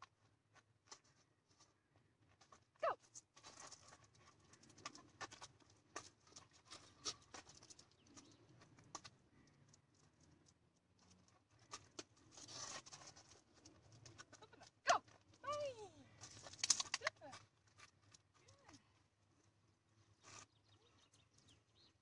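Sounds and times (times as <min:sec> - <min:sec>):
lure dragging on asphalt: 0:10.0 - 0:14.4
dog claws running: 0:16.2 - 0:18.7.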